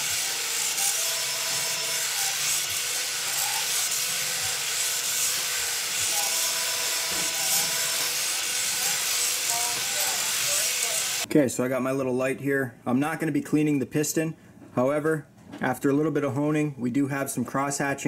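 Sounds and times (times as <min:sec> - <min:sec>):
faint drill motor whine: 0:00.0 - 0:11.3.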